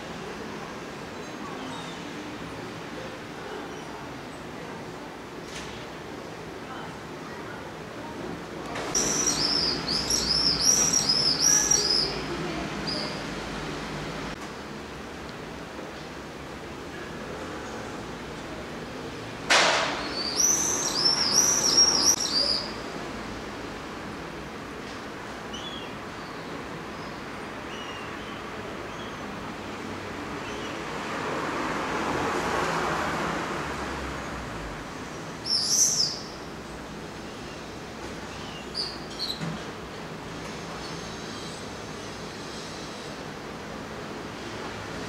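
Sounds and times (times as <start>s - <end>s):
young gulls calling: 8.9s - 12.3s.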